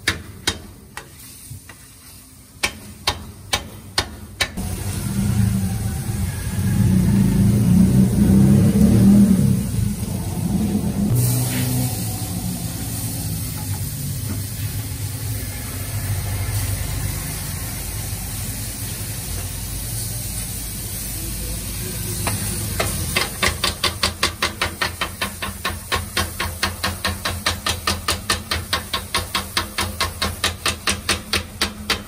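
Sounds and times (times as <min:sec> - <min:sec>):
vegetables sizzling on a griddle: 0:04.6 - 0:32.0
metal scrapers clacking on griddle: 0:22.2 - 0:32.0.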